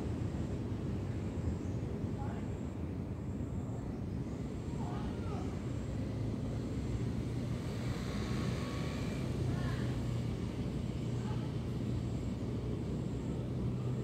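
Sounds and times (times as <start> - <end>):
distant engine rumble: 3.6 - 14.0.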